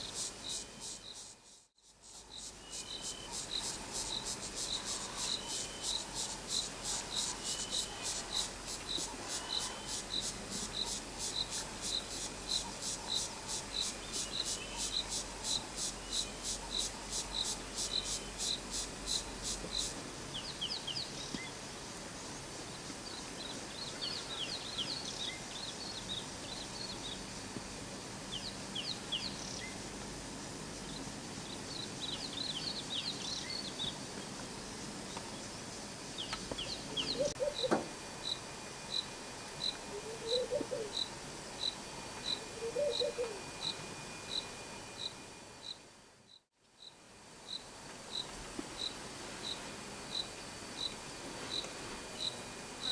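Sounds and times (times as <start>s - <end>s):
cricket chirping: 0.0s - 52.9s
steady background hiss: 0.0s - 52.9s
birds chirping and twittering: 36.2s - 38.4s.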